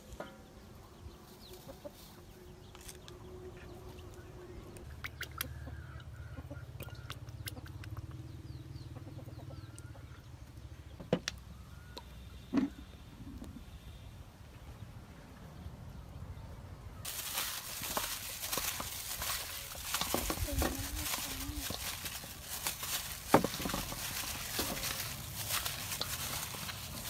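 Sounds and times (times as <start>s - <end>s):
chickens clucking: 0.8s - 2.7s, 4.9s - 10.5s.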